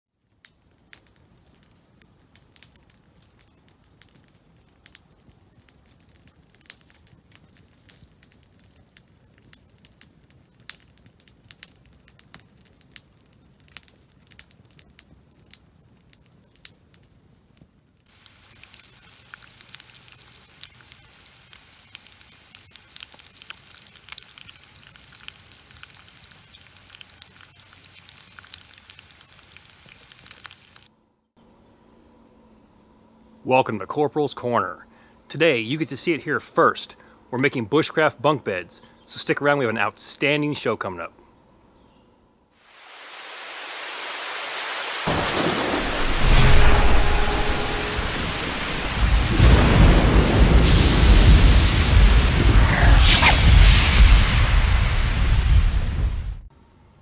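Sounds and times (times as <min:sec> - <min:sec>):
campfire crackling and popping: 0:00.2 - 0:30.9
bacon and eggs frying in a skillet: 0:18.0 - 0:30.9.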